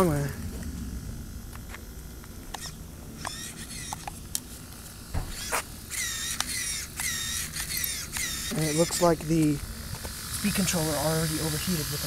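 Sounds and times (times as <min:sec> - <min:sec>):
rc car motor whining: 0:00.0 - 0:12.0
sharp clicks: 0:01.6 - 0:04.5, 0:05.3 - 0:10.2.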